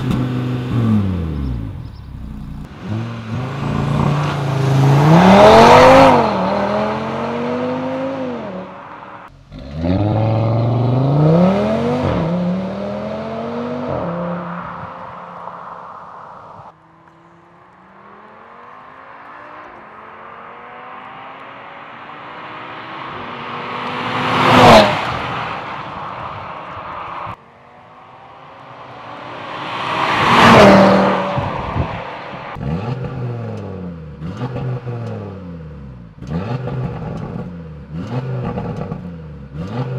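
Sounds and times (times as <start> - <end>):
engine revving: 0.0 - 15.7, 28.5 - 39.9
car accelerating past: 2.6 - 35.0.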